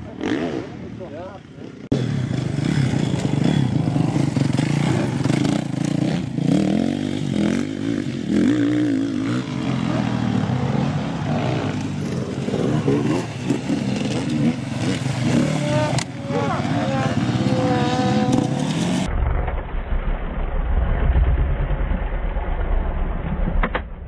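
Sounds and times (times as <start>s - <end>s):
dirt bike engine revving: 0.0s - 19.1s.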